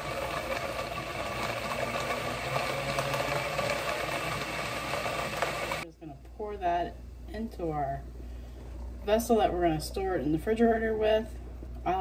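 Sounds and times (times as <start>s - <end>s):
blender motor running: 0.0s - 5.8s.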